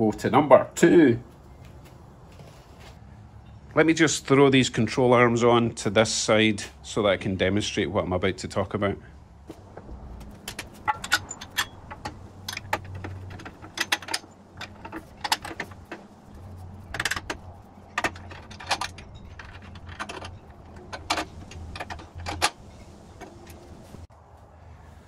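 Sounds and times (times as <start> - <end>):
sharp metal knocks: 9.6 - 23.7
metallic clanks and clicks: 9.8 - 24.1.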